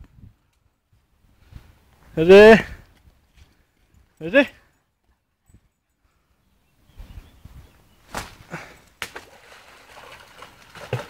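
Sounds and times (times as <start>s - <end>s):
dog splashing in water: 9.2s - 11.0s.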